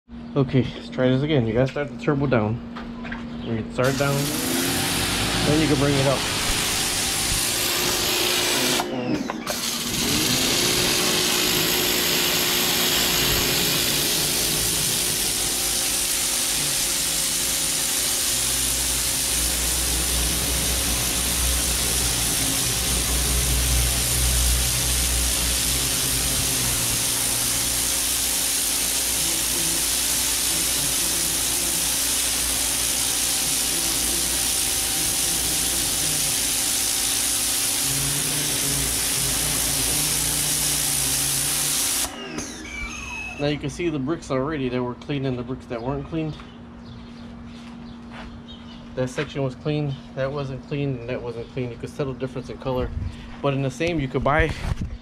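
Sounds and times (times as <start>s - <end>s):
water spray hissing on brick: 3.8s - 8.8s, 9.7s - 42.1s
pump humming: 3.8s - 44.0s.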